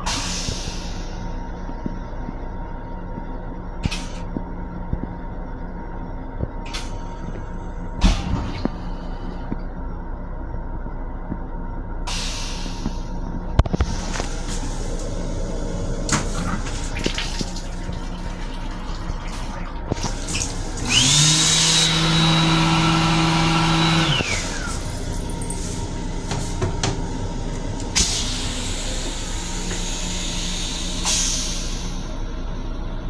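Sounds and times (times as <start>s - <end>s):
high whine: 0.0s - 33.0s
pump hum: 13.8s - 31.1s.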